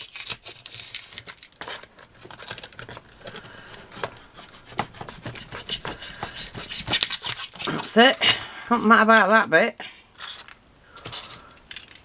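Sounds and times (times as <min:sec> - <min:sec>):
knife cutting polystyrene foam: 0:00.0 - 0:01.2, 0:04.2 - 0:08.2.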